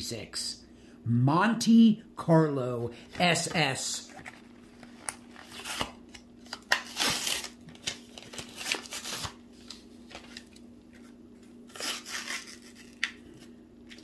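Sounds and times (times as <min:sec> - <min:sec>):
plastic and cardboard rustling: 0:03.0 - 0:05.9, 0:06.5 - 0:14.0.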